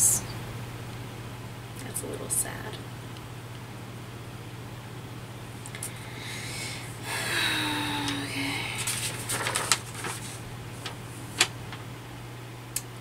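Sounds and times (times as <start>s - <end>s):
paper crinkling: 8.7s - 11.8s.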